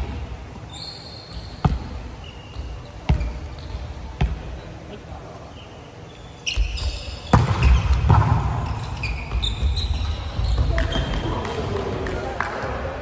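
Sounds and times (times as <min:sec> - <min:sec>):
sneakers squeaking on wooden floor: 0:00.5 - 0:11.4
volleyball being struck: 0:07.3 - 0:08.8.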